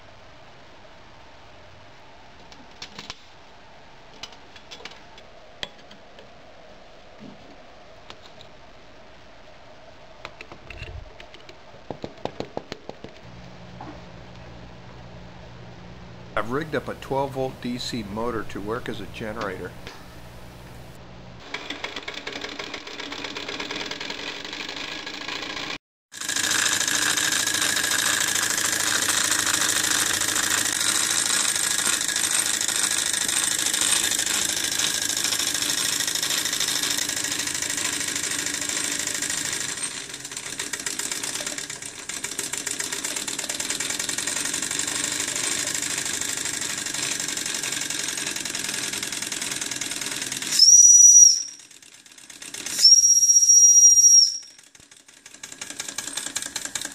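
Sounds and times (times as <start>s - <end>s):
model steam engine chuffing: 21.5s - 53.0s, 54.6s - 56.9s
steam whistle high note: 50.5s - 51.6s, 52.8s - 54.5s.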